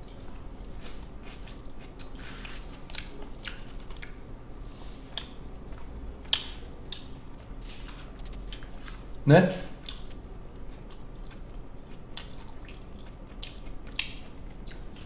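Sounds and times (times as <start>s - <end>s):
man chewing food: 0.0s - 15.0s.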